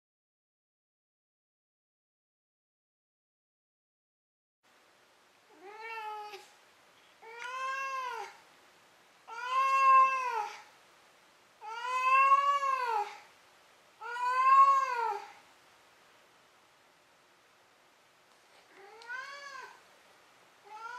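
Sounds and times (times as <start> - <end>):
cat meowing: 5.5 - 6.5, 7.2 - 8.4, 9.3 - 10.7, 11.6 - 13.2, 14.0 - 15.4, 18.7 - 19.8, 20.6 - 20.9.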